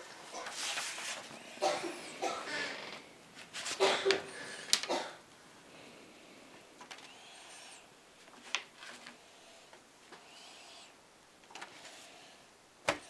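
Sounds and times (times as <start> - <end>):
paper crinkling: 0.3 - 1.3, 3.4 - 4.9.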